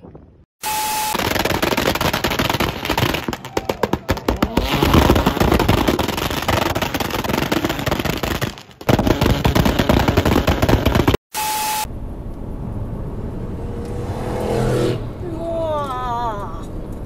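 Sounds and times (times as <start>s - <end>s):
exhaust backfiring pops and bangs: 1.2s - 11.2s.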